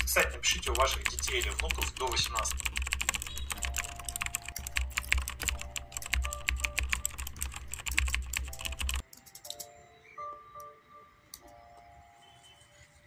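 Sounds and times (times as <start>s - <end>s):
laptop keyboard typing: 0.0s - 9.7s
soft music: 0.0s - 13.0s.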